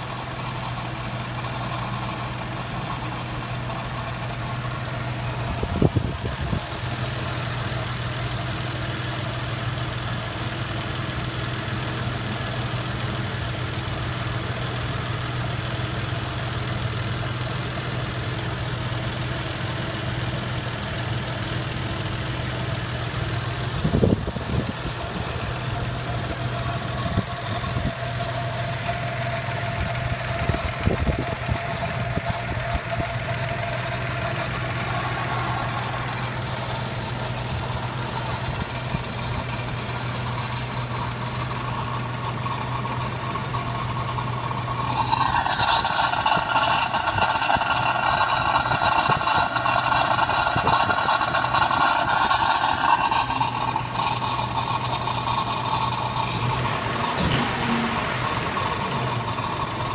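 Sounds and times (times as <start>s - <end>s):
car engine idling: 0.0s - 59.9s
steady tone: 44.7s - 59.9s.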